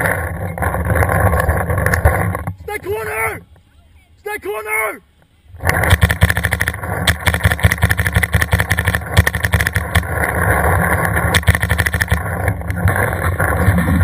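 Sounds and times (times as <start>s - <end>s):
steady rushing noise: 0.0s - 14.0s
paintball marker firing rapidly: 5.6s - 12.4s.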